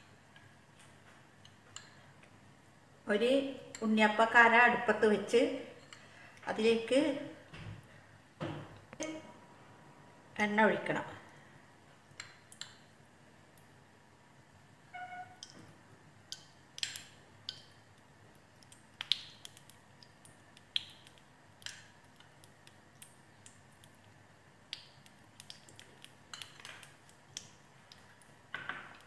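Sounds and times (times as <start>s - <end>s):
oil ticking and crackling: 12.0s - 13.8s, 15.4s - 29.0s.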